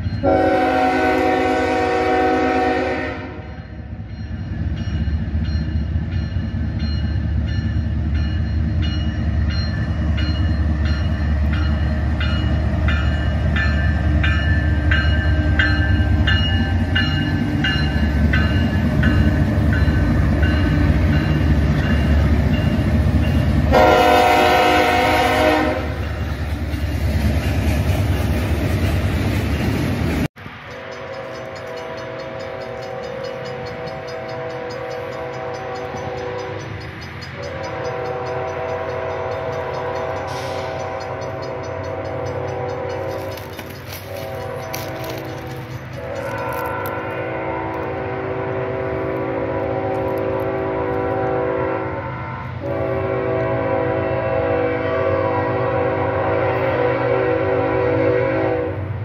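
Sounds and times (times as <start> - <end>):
faint distant train horn: 0.0 - 26.5, 30.6 - 59.0
train rumbling past: 0.0 - 59.0
locomotive horn: 0.2 - 3.8, 23.6 - 26.3, 30.7 - 36.7, 37.4 - 59.0.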